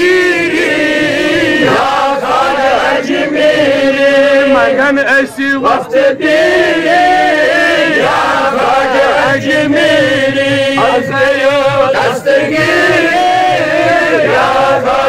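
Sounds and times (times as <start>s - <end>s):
men chanting devotional song: 0.0s - 15.0s.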